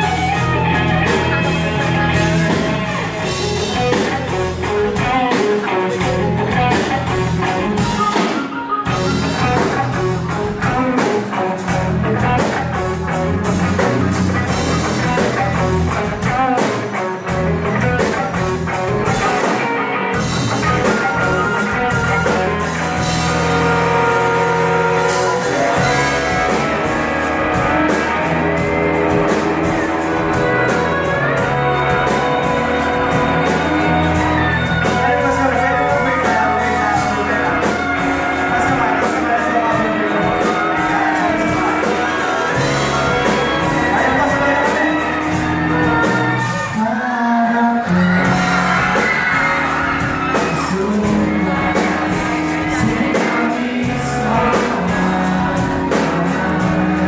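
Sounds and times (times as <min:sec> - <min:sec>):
drums and cymbals: 0:00.0 - 0:46.9, 0:48.1 - 0:57.0
pop-rock band playing live: 0:00.0 - 0:57.0
person singing: 0:20.4 - 0:57.0.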